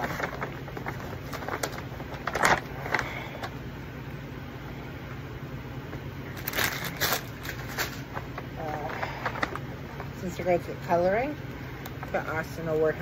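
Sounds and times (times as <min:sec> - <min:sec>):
packaging crinkling: 0:00.0 - 0:03.6, 0:06.2 - 0:10.4
paper bag rustling: 0:00.0 - 0:03.6, 0:06.3 - 0:10.7
steady low hum: 0:00.0 - 0:13.0.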